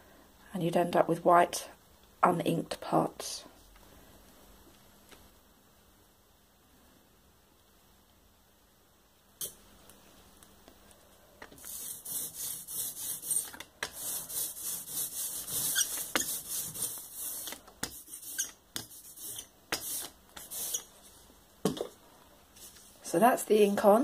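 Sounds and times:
ink roller hissing: 0:11.6 - 0:21.2.

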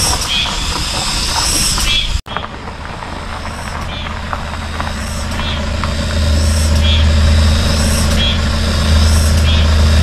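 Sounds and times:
vehicle engine idling: 0:02.3 - 0:10.0.

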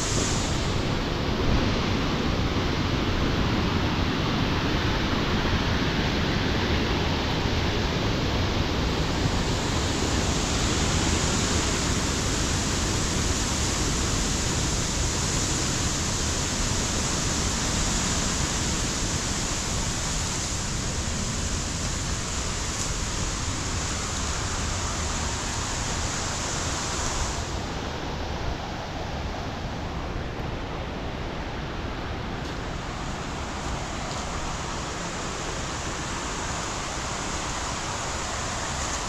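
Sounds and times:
waterfall rushing: 0:00.0 - 0:39.0.

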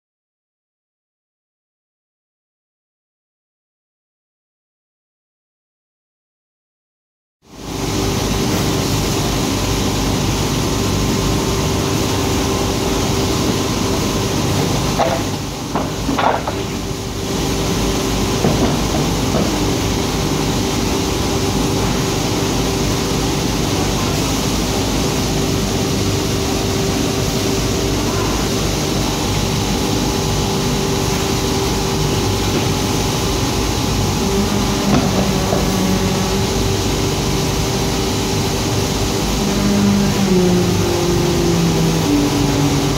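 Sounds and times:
polishing machine running: 0:23.6 - 0:42.9.

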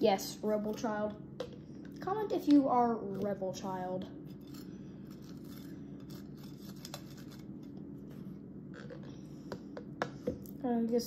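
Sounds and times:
knife scraping toast: 0:04.3 - 0:07.5.

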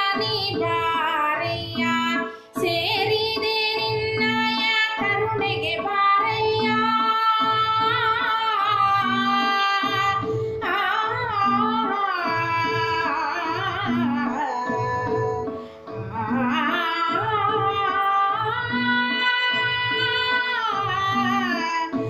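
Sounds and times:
woman singing: 0:00.0 - 0:22.0.

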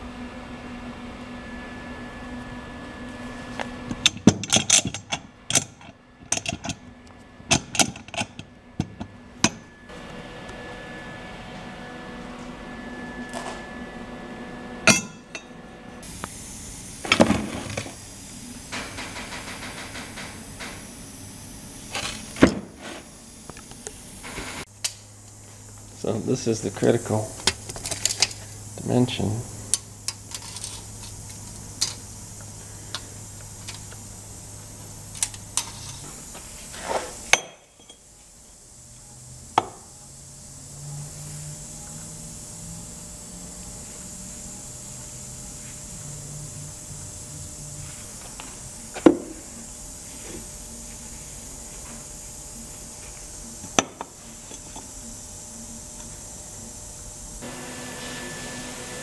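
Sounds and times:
steady hiss: 0:16.0 - 0:58.7.

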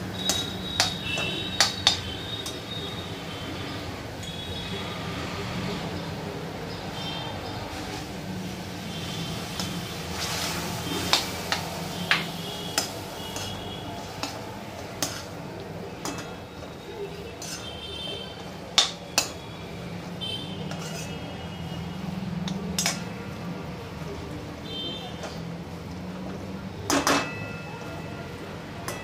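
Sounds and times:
steel spoon scraping a pan: 0:00.0 - 0:03.8, 0:07.7 - 0:19.5, 0:20.3 - 0:21.8, 0:22.4 - 0:23.1.

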